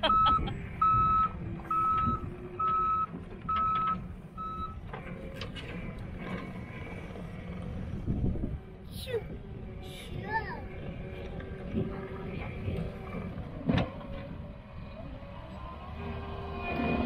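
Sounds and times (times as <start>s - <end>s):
backup alarm beeping: 0.0s - 4.8s
diesel engine running: 0.0s - 17.0s.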